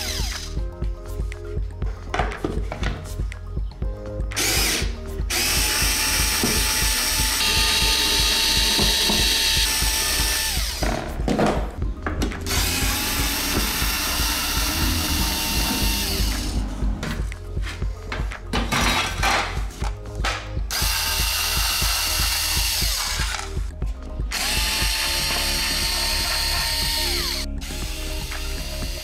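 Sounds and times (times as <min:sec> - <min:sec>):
electric screwdriver motor whine: 0:00.0 - 0:00.5, 0:04.4 - 0:10.8, 0:12.5 - 0:16.5, 0:20.7 - 0:23.5, 0:24.3 - 0:29.0.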